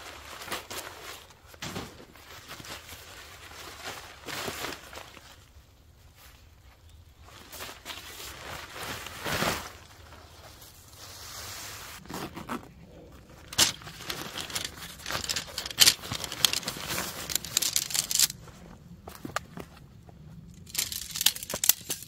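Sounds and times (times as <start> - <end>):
tent fabric rustling: 0.0 - 6.5, 7.2 - 18.4
tent poles clicking and rattling: 12.1 - 18.4, 20.5 - 22.0.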